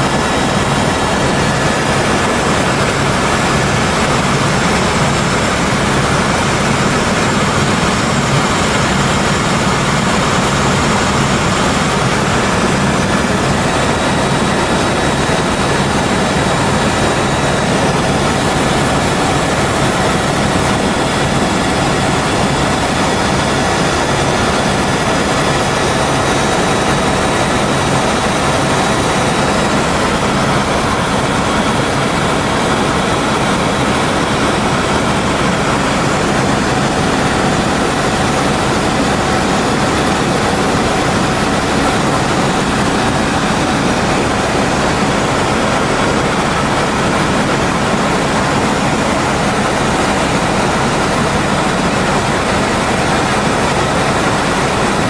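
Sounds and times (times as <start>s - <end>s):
helicopter engine and rotor: 0.0s - 55.0s.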